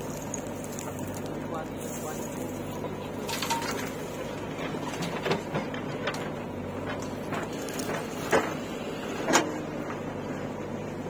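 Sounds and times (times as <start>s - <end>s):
diesel engine drone: 0.0s - 11.0s
digger bucket knocks and clanks: 2.2s - 10.1s.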